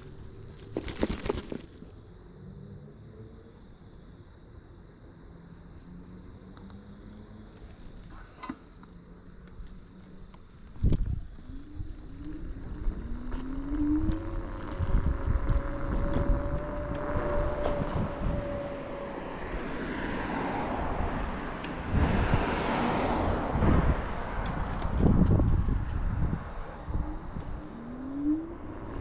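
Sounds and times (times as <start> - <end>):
road rumble: 0.0 - 29.0
electric scooter motor whine: 9.1 - 22.0, 24.5 - 29.0
wind on microphone: 10.7 - 19.8, 20.8 - 29.0.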